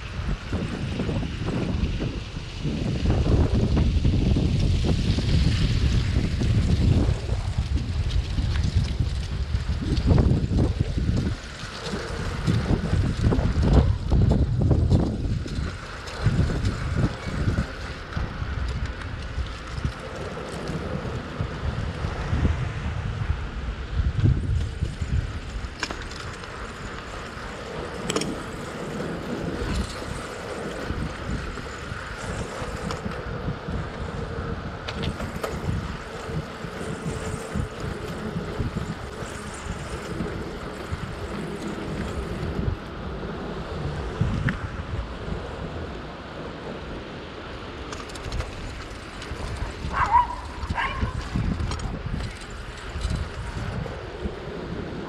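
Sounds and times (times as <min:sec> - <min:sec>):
bicycle tyre and road noise: 0:00.0 - 0:55.0
bike clicks and rattles: 0:00.0 - 0:55.0
wind on microphone: 0:00.0 - 0:55.0
dog yipping: 0:49.9 - 0:51.2.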